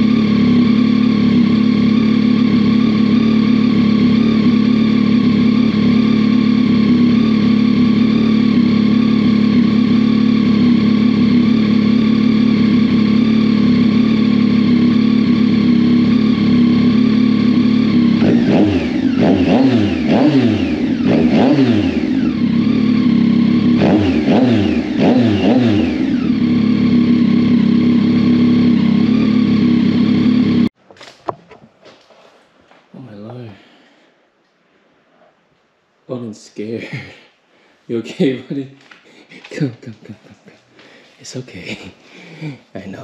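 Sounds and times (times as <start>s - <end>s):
motorcycle engine idling: 0.0s - 30.8s
motorcycle throttle blips: 0.0s - 31.4s.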